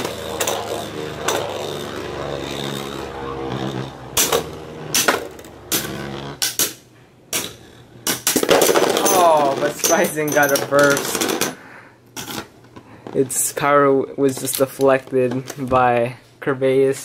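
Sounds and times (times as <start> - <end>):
spinning tops clacking: 0.0 - 6.8
spinning tops whirring: 0.0 - 6.8.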